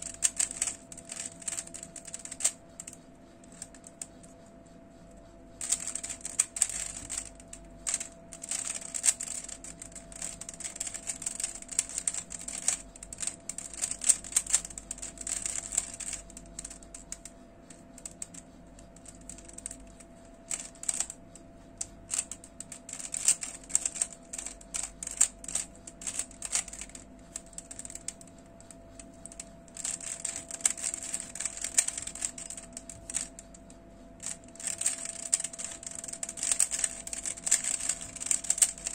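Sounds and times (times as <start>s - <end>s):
puzzle cube clicking: 0.1s - 2.6s, 5.6s - 7.3s, 7.9s - 16.7s, 23.0s - 27.0s, 29.8s - 33.4s, 34.2s - 38.9s.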